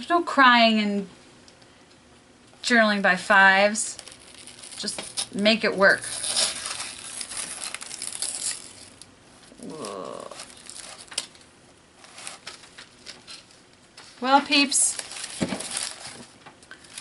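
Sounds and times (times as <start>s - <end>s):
wax paper crinkling and tearing: 3.3s - 17.0s
person humming: 9.6s - 10.5s.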